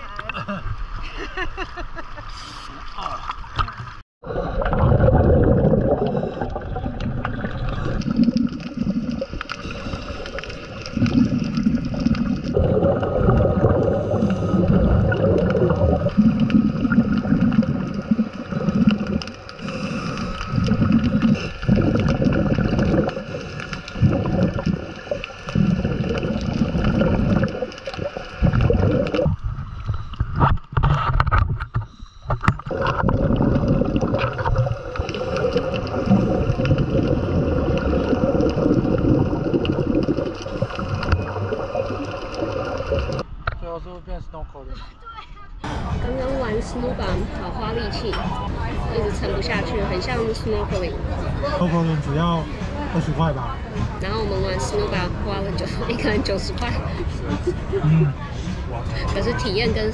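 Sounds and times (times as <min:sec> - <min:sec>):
underwater breathing bubbles: 0:04.2 - 0:43.2.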